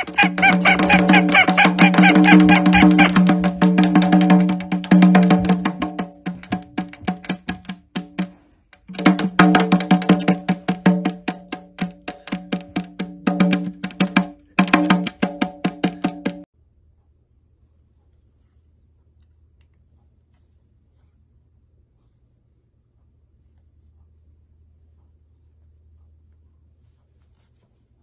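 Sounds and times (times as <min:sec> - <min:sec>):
duck tapping bill on hand drum: 0:00.0 - 0:16.5.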